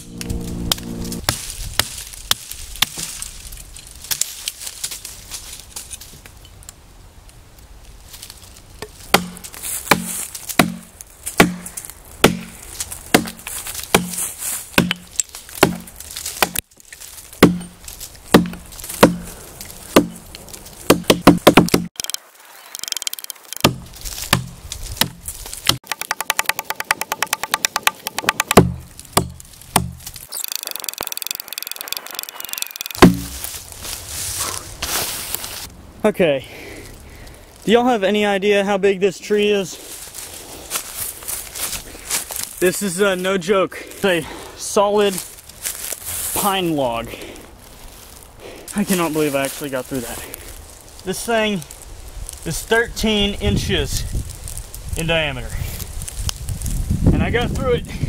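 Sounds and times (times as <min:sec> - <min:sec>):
hatchet chopping log: 0:01.3 - 0:03.2, 0:08.8 - 0:16.6, 0:17.4 - 0:20.3, 0:20.9 - 0:22.2, 0:22.8 - 0:30.2, 0:32.9 - 0:33.5.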